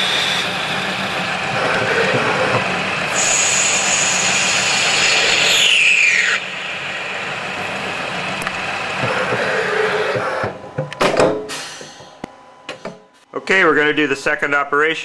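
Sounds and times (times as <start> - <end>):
high whine sliding down in pitch: 0.0 - 10.5
lathe running: 0.0 - 10.6.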